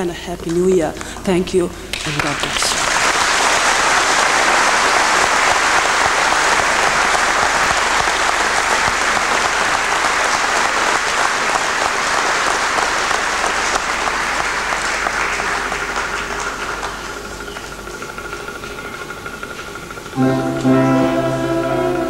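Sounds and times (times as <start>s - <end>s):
audience applauding: 1.9s - 19.4s.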